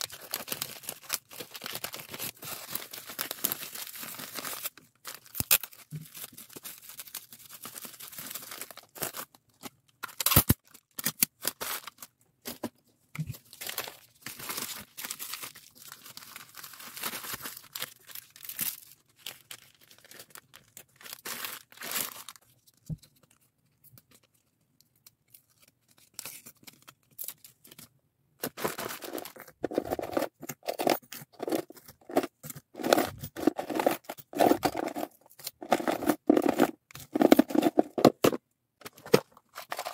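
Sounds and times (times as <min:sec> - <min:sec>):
plastic bag rustling and tearing: 0:00.0 - 0:09.3, 0:13.3 - 0:22.5, 0:28.4 - 0:39.9
bubble wrap crinkling: 0:00.0 - 0:12.1, 0:13.2 - 0:22.5, 0:25.5 - 0:38.3, 0:39.1 - 0:39.9
plastic beads clicking and rattling: 0:28.5 - 0:39.9.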